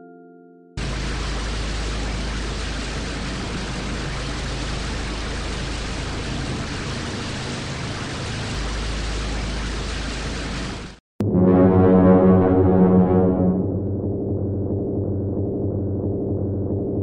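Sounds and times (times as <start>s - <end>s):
churned water rushing: 0.8s - 11.0s
low diesel engine rumble: 0.8s - 11.0s.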